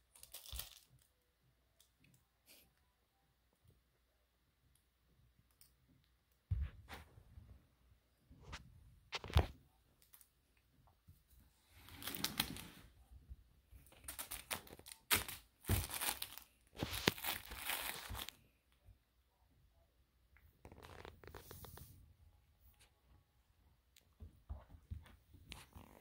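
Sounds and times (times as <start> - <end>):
fabric toy crinkling: 0.1 - 1.1, 13.8 - 18.4.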